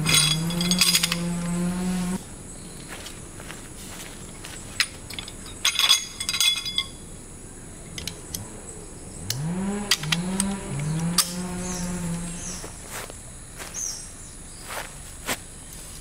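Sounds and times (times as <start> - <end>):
light knocks and clinks: 0.0 - 1.5, 4.3 - 7.0
low buzzy pitched sound: 0.0 - 2.2, 9.3 - 12.8
high insect drone: 0.0 - 16.0.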